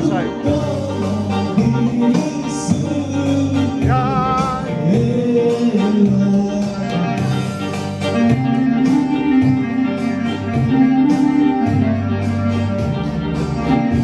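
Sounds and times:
person singing with vibrato: 0:00.0 - 0:07.7
instrumental accompaniment with bass: 0:00.0 - 0:14.0.

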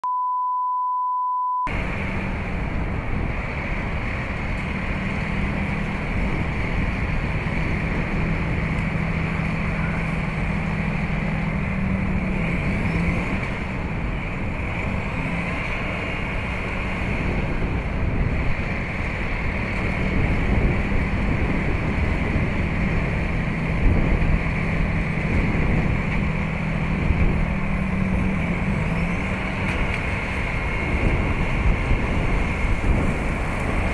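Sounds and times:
steady test tone: 0:00.0 - 0:01.9
wind and storm rushing: 0:01.7 - 0:33.9.

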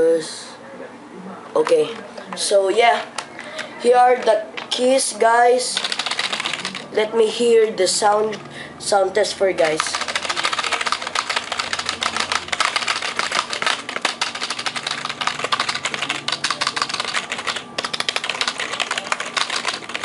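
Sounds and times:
keyboard typing clicks: 0:09.6 - 0:20.0.

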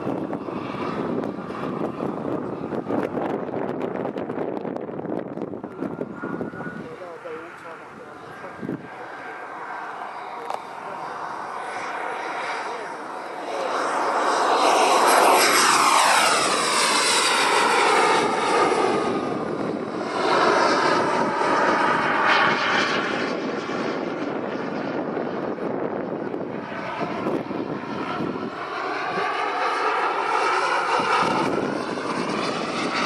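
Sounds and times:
model jet turbine whining: 0:00.0 - 0:33.0.

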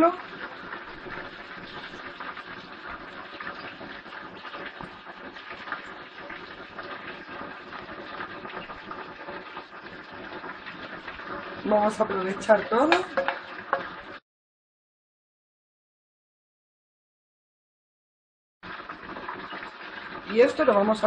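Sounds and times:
hot frying oil sizzling: 0:00.0 - 0:14.2, 0:18.6 - 0:21.0.

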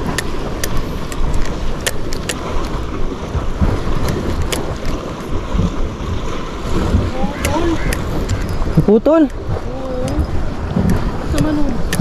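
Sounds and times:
sharp clicks: 0:00.0 - 0:02.7, 0:04.0 - 0:05.0, 0:07.4 - 0:08.6, 0:10.8 - 0:12.0
wind buffeting microphone: 0:00.0 - 0:12.0.

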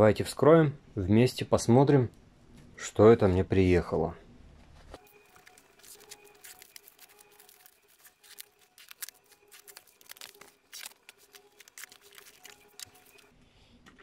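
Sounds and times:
plastic film crackling and rustling: 0:05.0 - 0:13.3
utility knife slicing plastic wrap: 0:05.3 - 0:13.3.

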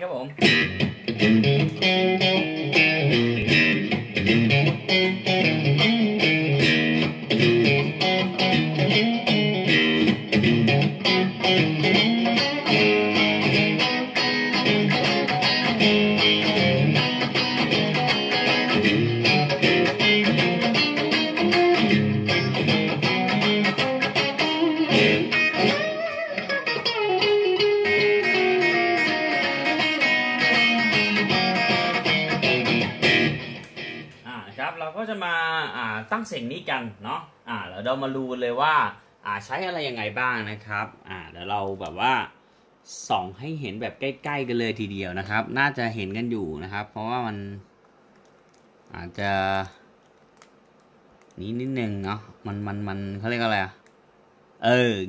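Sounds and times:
overdriven electric guitar: 0:00.4 - 0:34.3.

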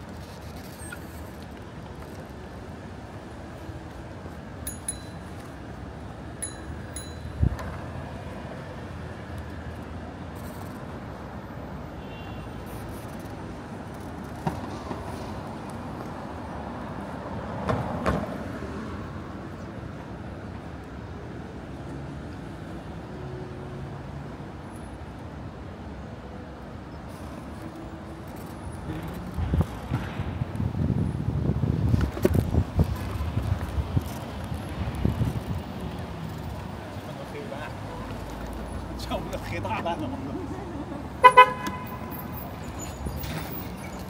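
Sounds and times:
road traffic hum: 0:00.0 - 0:44.0
light clinks: 0:04.6 - 0:05.5.

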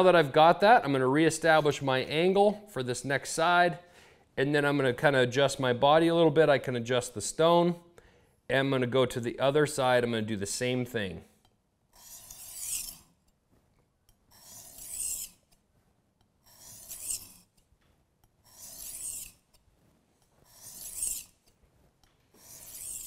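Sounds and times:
knife scraping on whetstone: 0:11.9 - 0:23.0.

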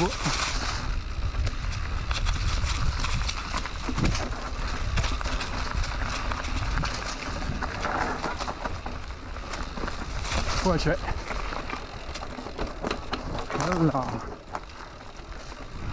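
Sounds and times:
wind rumble on microphone: 0:00.0 - 0:11.5, 0:15.1 - 0:15.9
bike clicks and rattles: 0:00.0 - 0:15.9
bike tyres rolling over leaves: 0:00.0 - 0:15.9.

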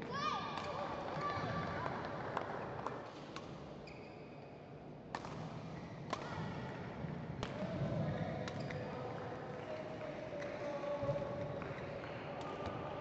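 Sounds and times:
shoe squeak on court mat: 0:03.8 - 0:04.6
racket hitting shuttlecock: 0:05.1 - 0:06.6.

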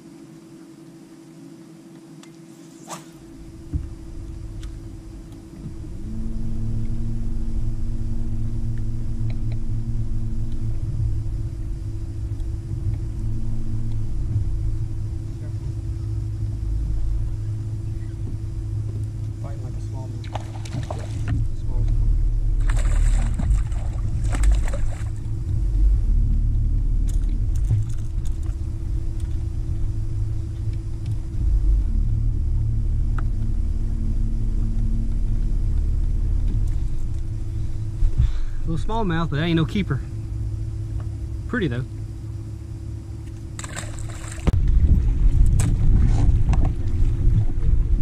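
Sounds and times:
electric trolling motor humming: 0:00.0 - 0:48.0
low steady rumble: 0:00.0 - 0:48.0
wind buffeting microphone: 0:03.3 - 0:40.4, 0:43.4 - 0:48.0
water splash: 0:22.6 - 0:25.3, 0:43.6 - 0:44.7.

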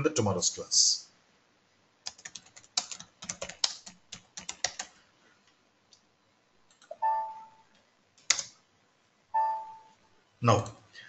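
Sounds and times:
computer keyboard typing: 0:02.0 - 0:05.0, 0:08.2 - 0:08.5.

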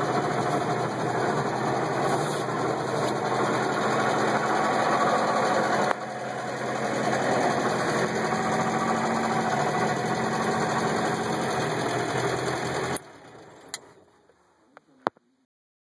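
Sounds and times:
car engine idling: 0:00.0 - 0:14.8
click: 0:13.6 - 0:13.9.

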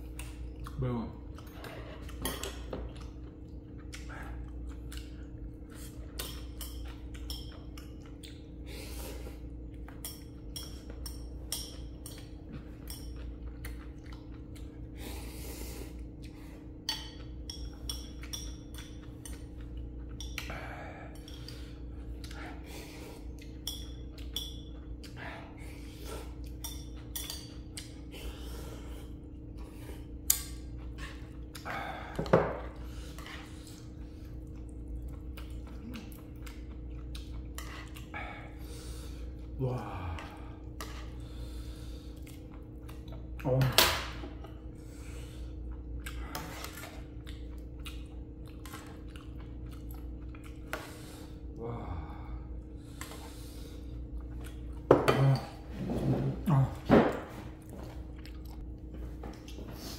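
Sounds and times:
steady low hum: 0:00.0 - 0:59.9
utensils clinking against bowl: 0:09.8 - 0:13.6, 0:16.8 - 0:20.5, 0:21.1 - 0:21.8, 0:23.4 - 0:24.9, 0:26.3 - 0:28.0
person breathing: 0:15.0 - 0:16.7, 0:38.1 - 0:40.6, 0:41.2 - 0:42.2, 0:50.8 - 0:53.9.

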